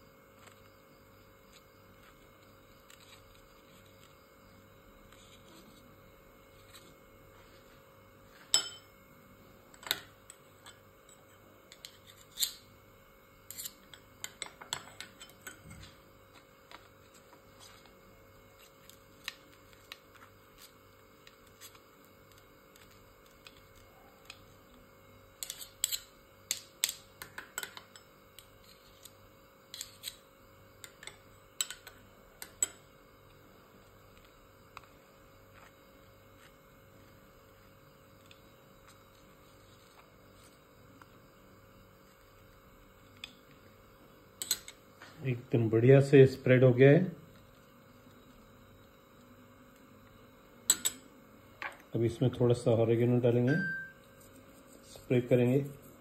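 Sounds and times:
faint steady hum: 0.0s - 56.0s
spoon scraping bread: 1.4s - 4.2s, 5.0s - 8.6s, 10.3s - 12.7s, 13.4s - 24.6s, 25.3s - 26.1s, 27.3s - 32.7s.

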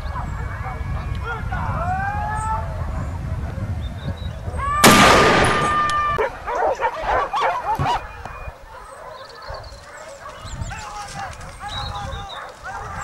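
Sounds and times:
dogs barking and yelping: 2.3s - 4.7s, 5.7s - 13.0s
rifle shot: 4.8s - 6.2s.

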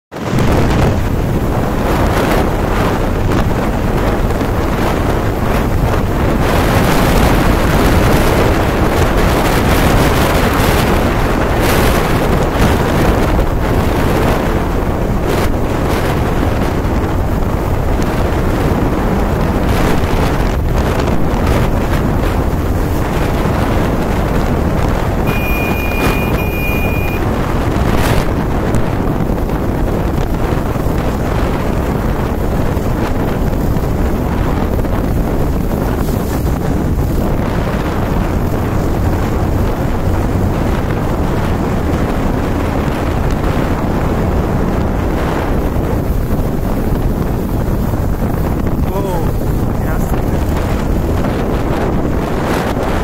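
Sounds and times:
wind roaring over microphone: 0.1s - 53.0s
high steady tone: 25.3s - 27.2s.

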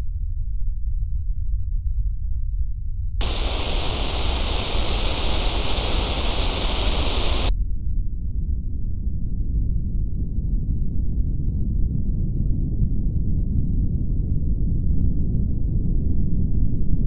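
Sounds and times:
static hiss: 3.2s - 7.5s.

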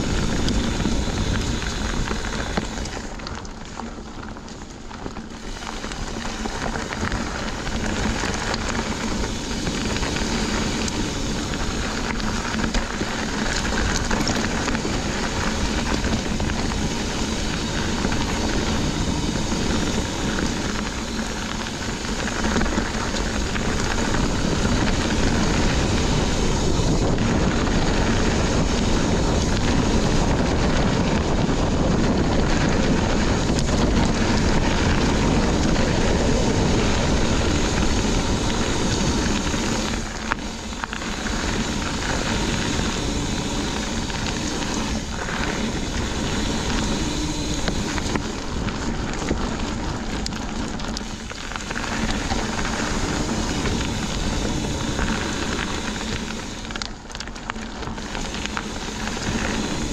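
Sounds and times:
mountain bike rattling: 0.0s - 59.9s
wind on microphone: 0.0s - 59.9s.

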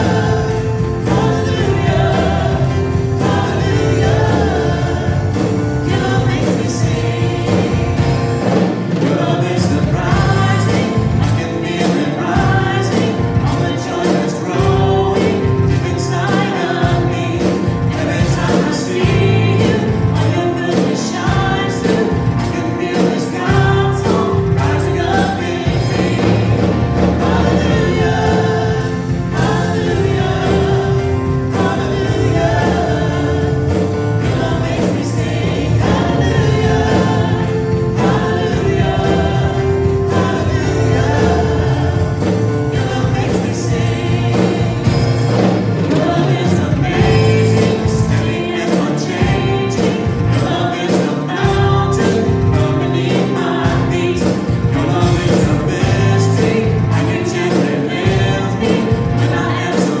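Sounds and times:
steady beat: 0.0s - 9.1s, 23.5s - 50.7s
keyboard and guitar: 0.0s - 60.0s
voices singing together: 0.0s - 60.0s.

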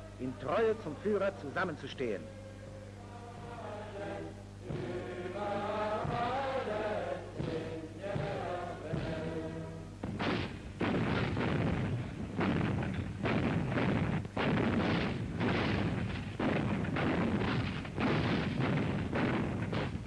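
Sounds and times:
crowd chanting: 3.1s - 9.9s
artillery firing: 10.1s - 20.0s.

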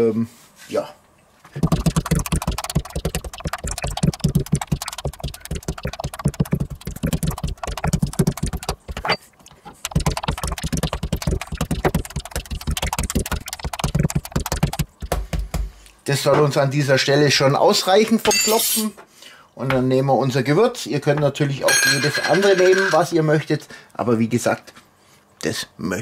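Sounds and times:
meat mallet pounding on wooden board: 1.6s - 9.2s, 9.9s - 15.7s.

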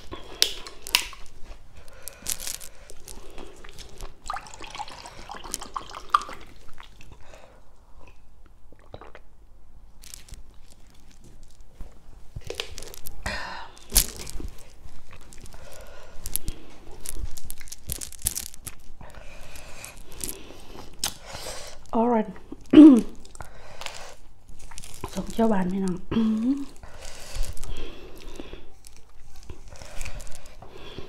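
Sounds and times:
chewing and crunching vegetables: 0.0s - 9.3s, 10.0s - 31.0s
wet mouth sounds: 2.2s - 7.2s.

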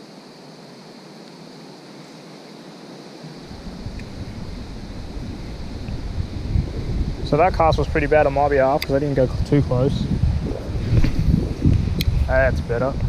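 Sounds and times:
wind buffeting microphone: 3.3s - 13.0s.

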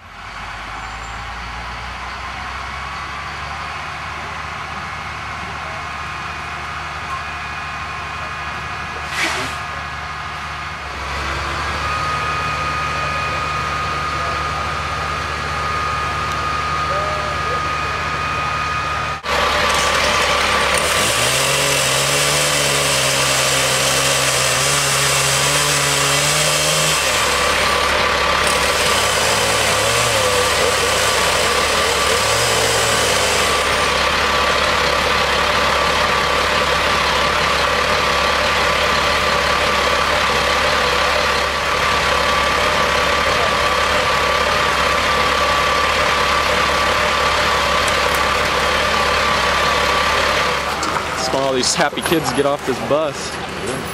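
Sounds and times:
engines running: 0.0s - 53.9s
chainsaw cutting log: 9.1s - 9.6s, 19.2s - 34.3s, 47.7s - 51.6s.

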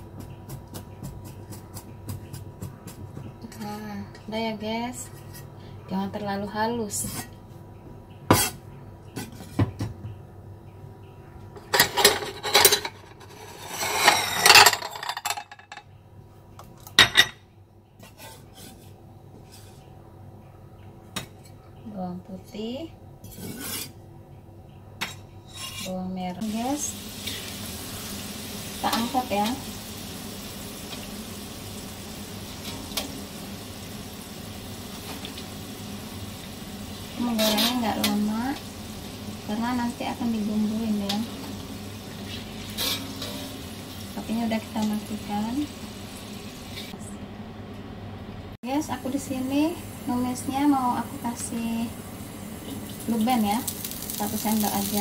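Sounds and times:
potatoes sizzling in oil: 26.4s - 47.0s, 48.8s - 55.0s.

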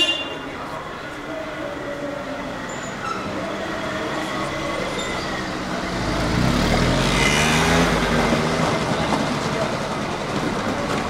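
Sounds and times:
street traffic: 0.0s - 11.0s
vehicle engine passing close: 4.0s - 10.3s.

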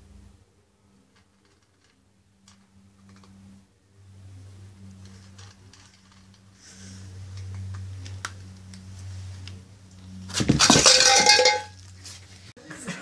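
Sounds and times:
food bowl clattering: 10.4s - 11.8s.

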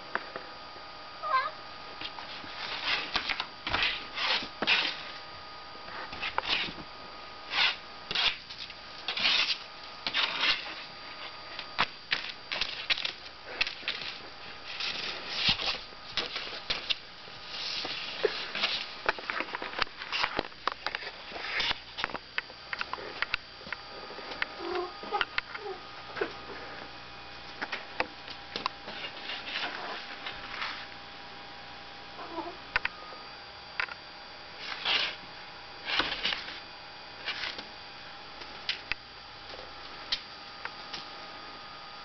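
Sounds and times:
cat scratching paper: 2.4s - 5.1s, 6.1s - 6.8s, 7.5s - 8.5s, 9.1s - 11.3s, 34.6s - 35.2s.

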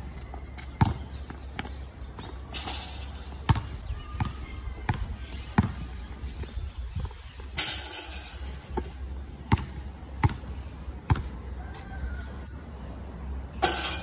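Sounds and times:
basketball bouncing on concrete: 0.1s - 7.1s, 8.7s - 11.9s.

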